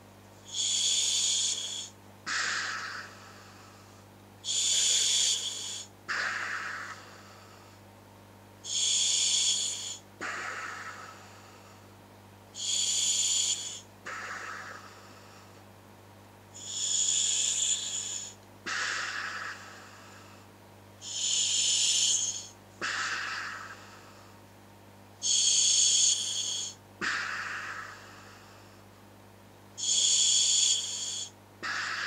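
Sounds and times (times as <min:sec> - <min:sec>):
breathing through regulator: 0:00.4 - 0:07.8, 0:08.6 - 0:11.9, 0:12.6 - 0:15.6, 0:16.6 - 0:24.4, 0:25.2 - 0:28.8, 0:29.8 - 0:32.0.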